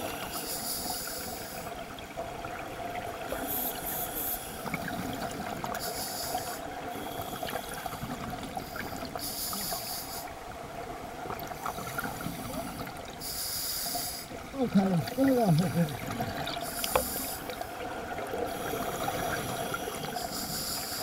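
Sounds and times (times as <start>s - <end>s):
regulator breathing hiss: 0.0s - 1.8s, 3.3s - 4.7s, 5.8s - 10.4s, 13.2s - 14.4s, 16.6s - 17.7s, 18.5s - 21.0s
faint steady hum: 0.0s - 21.0s
bubbling water: 14.4s - 20.2s.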